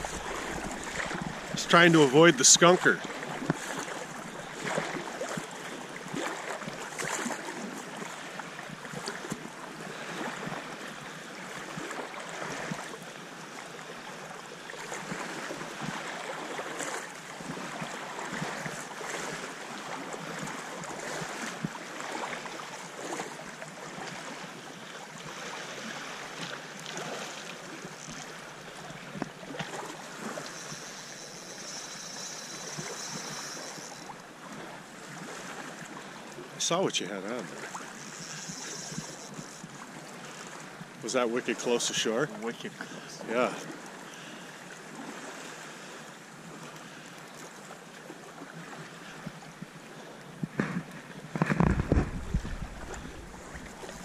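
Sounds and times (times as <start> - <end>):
splashes from wading: 0.0 - 9.4, 14.8 - 40.8
water sloshing and lapping: 0.0 - 54.0.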